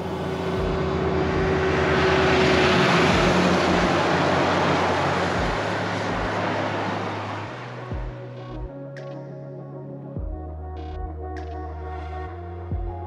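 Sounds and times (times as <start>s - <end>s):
heavy truck engine passing: 0.0s - 8.5s.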